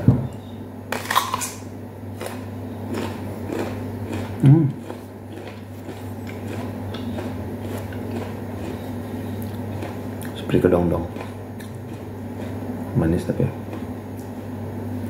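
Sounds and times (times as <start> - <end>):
steady low hum: 0.0 - 15.0
chewing with wet clicks: 2.2 - 12.6, 13.6 - 14.4
apricot crunch: 2.2 - 14.4.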